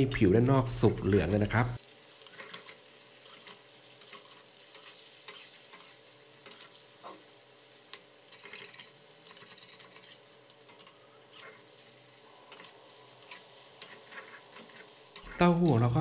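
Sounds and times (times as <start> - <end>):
tofu sizzling in oil: 0.4 - 16.0
metal spatula scraping a wok: 2.2 - 7.3, 8.2 - 15.8.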